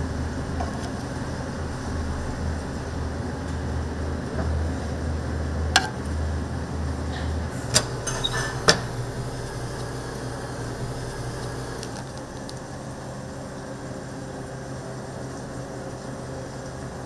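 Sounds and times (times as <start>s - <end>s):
steady low rumble: 0.0s - 12.4s
metal kitchen utensils clinking: 7.7s - 9.1s.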